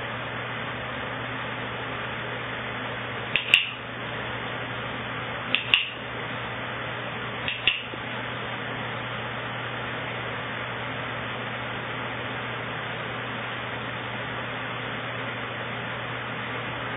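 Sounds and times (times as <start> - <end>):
training clicker double click: 3.4 - 3.8, 5.5 - 6.0, 7.5 - 7.9.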